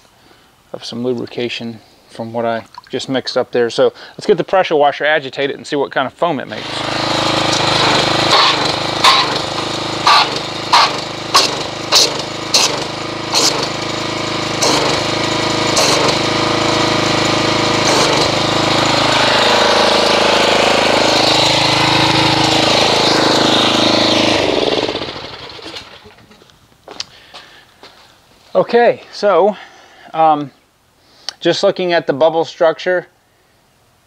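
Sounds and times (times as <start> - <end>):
sharp water splashes: 2.6 - 3.0
water jetting into bucket: 2.6 - 3.1, 6.5 - 25.4
pressure washer running: 6.5 - 26.3.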